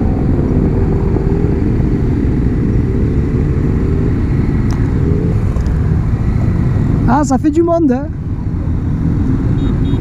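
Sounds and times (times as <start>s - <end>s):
motorcycle engine cruising: 0.0s - 7.4s
wind and road noise: 0.0s - 10.0s.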